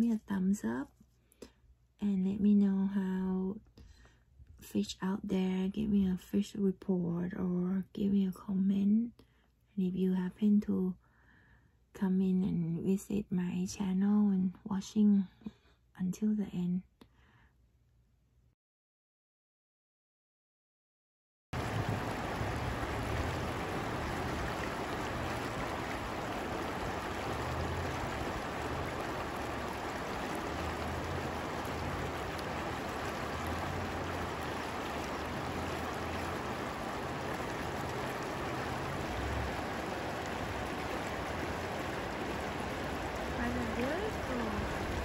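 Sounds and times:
river water rushing over rocks: 21.6 - 45.0.

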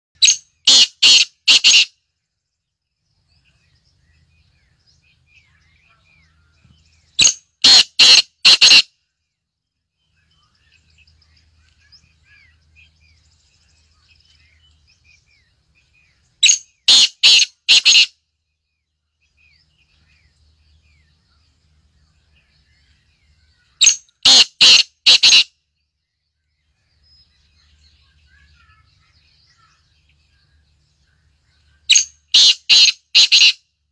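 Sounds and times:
faint bird chirps: 0.2 - 33.9
bird calling in clipped notes: 23.8 - 25.4, 31.9 - 33.6.

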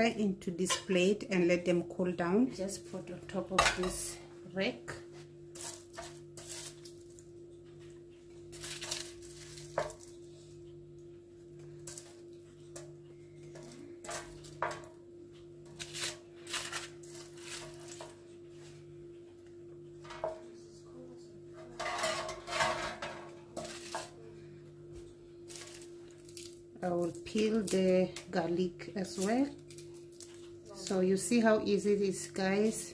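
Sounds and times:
steady low hum: 0.0 - 32.9
spatula scraping baking tray: 5.6 - 7.0, 15.7 - 18.2, 21.7 - 24.2
foil crinkling: 8.5 - 10.2, 25.5 - 28.2.

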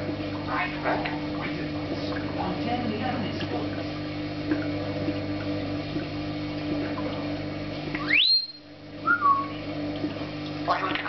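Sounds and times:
parrot wolf whistle: 8.0 - 9.6.

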